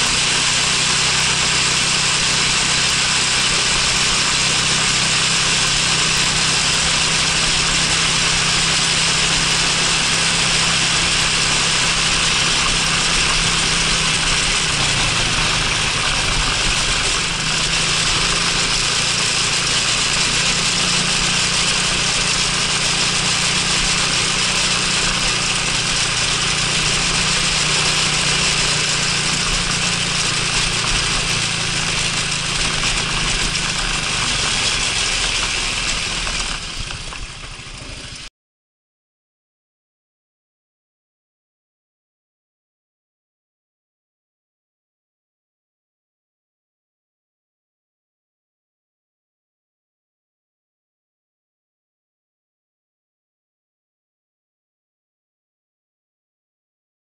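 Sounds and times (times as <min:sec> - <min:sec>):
scooter engine running: 0:00.0 - 0:38.3
wind and road noise: 0:00.0 - 0:38.3.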